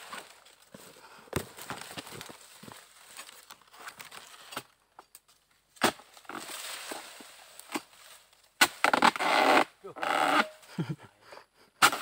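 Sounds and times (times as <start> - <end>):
dry fronds crackling and rustling: 0.0 - 9.2.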